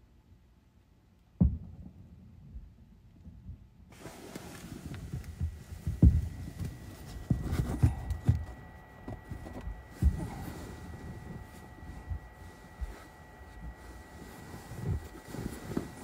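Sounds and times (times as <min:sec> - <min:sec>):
distant fireworks booms: 0:01.4 - 0:03.6, 0:04.9 - 0:06.6.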